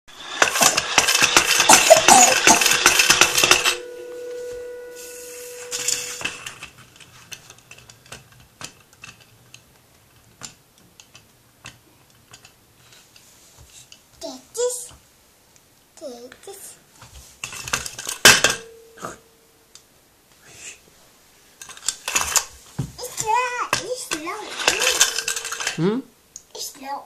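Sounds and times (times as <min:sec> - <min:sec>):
spinning top humming: 0:00.1 - 0:06.6, 0:24.4 - 0:25.8
spinning top pump rattling: 0:00.2 - 0:03.8, 0:24.2 - 0:25.8.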